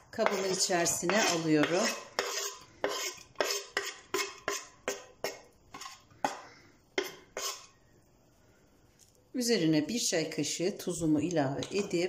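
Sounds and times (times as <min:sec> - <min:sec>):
knife scraping wooden cutting board: 0:00.0 - 0:06.0, 0:07.0 - 0:07.7.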